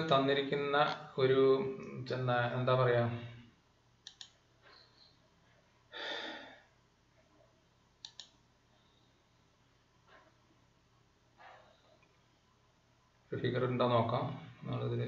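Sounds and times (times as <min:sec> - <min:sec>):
faint mouse clicks: 0:04.0 - 0:04.8, 0:08.0 - 0:08.4
breath into microphone: 0:05.9 - 0:06.7.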